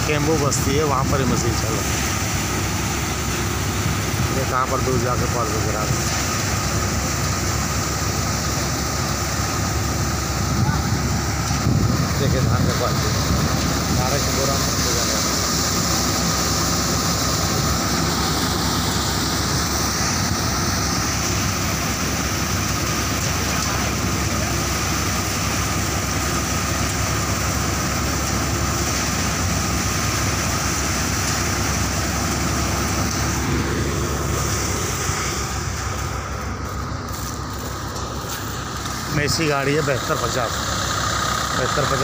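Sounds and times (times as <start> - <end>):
thresher machine drone: 0.0 - 42.0.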